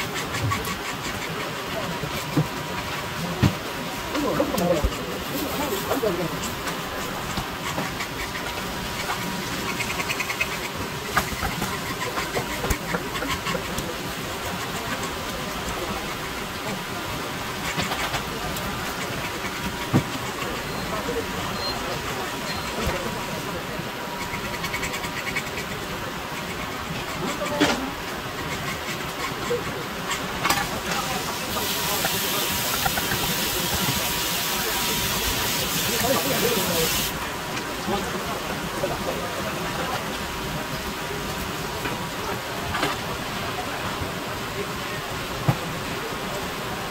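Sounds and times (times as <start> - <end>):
steady hiss: 25.0 - 46.9.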